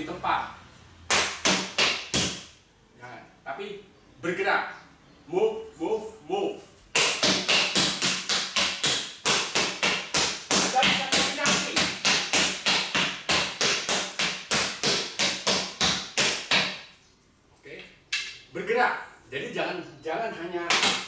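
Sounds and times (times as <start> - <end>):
sticks striking rubber tyres: 6.9 - 16.9.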